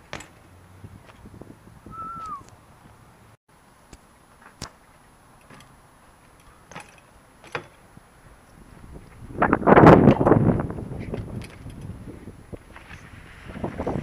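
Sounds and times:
wind noise on microphone: 0.0 - 3.1, 7.8 - 14.0
bike ticks and clicks: 3.9 - 9.4, 10.0 - 13.1.

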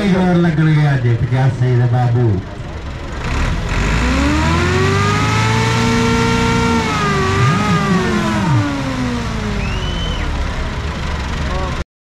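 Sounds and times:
lower engine note: 0.0 - 11.8
tractor diesel engine revving: 2.4 - 11.8.

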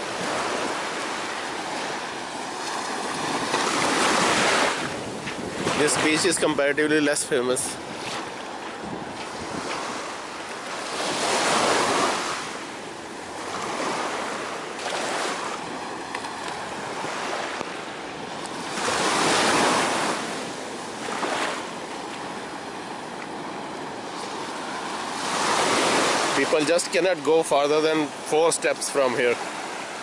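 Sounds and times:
small waves breaking on sand: 0.0 - 30.0.

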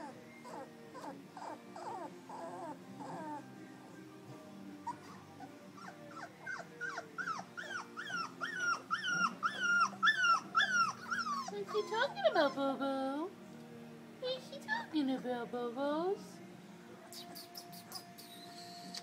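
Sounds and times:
puppy whining: 0.0 - 4.0, 4.8 - 12.8, 17.0 - 19.0.

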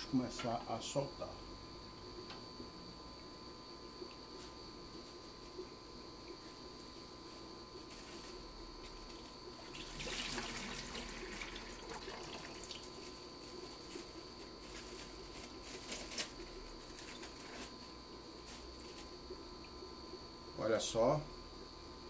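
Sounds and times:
faint high whine: 0.0 - 22.0
water pouring: 9.6 - 13.0.

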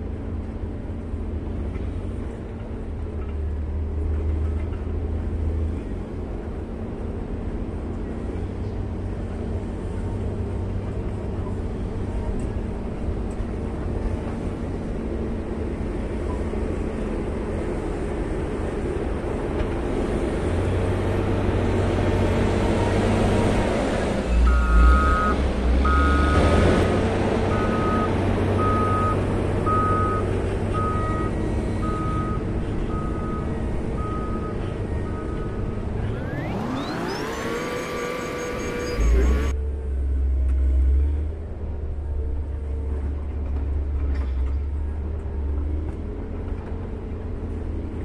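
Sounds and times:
grader diesel engine running: 0.0 - 48.0
reversing alarm beeping: 24.4 - 26.5, 27.5 - 30.2, 30.8 - 39.5.

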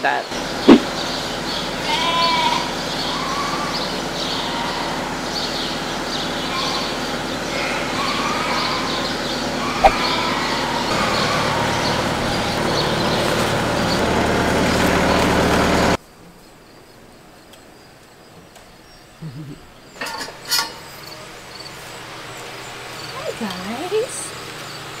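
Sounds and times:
steady hum: 0.3 - 16.0
sheep bleating: 1.8 - 5.3, 6.4 - 12.9.

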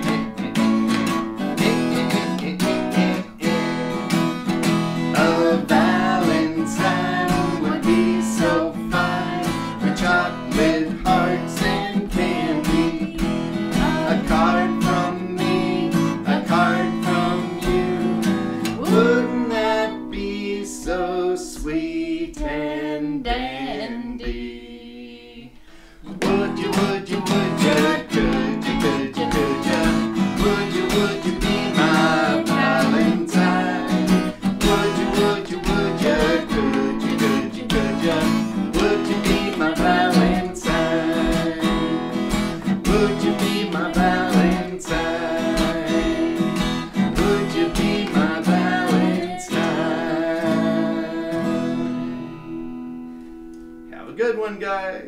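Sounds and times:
man singing: 0.0 - 0.8, 1.4 - 4.3, 5.0 - 52.8
acoustic guitar strumming: 0.0 - 24.6, 25.7 - 54.8
woman singing: 5.2 - 25.6, 26.2 - 52.8.

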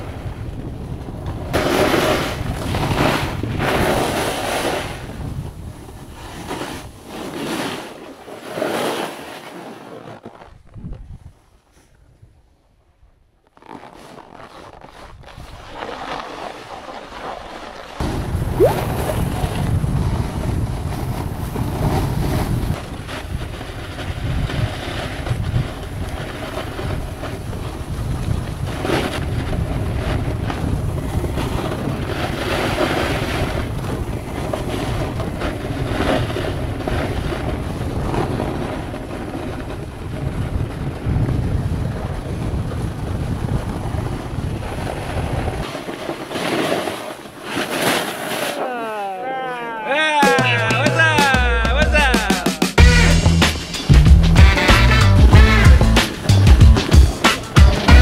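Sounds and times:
wind buffeting microphone: 0.0 - 7.0, 18.0 - 45.7.

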